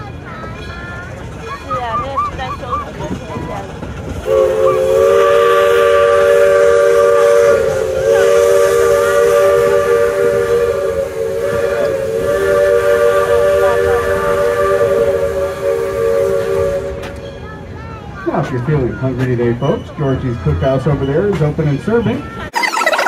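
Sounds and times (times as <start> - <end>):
steam whistle blowing: 4.2 - 17.2.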